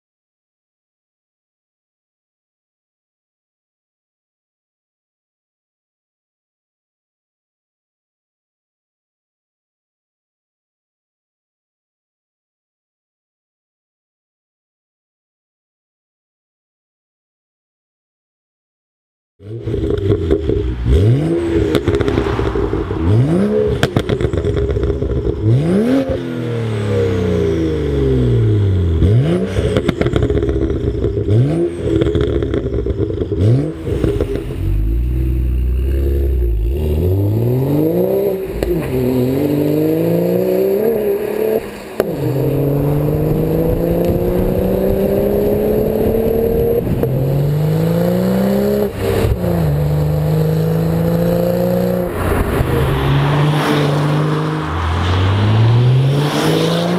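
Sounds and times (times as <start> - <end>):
car engine revving: 19.4 - 56.9.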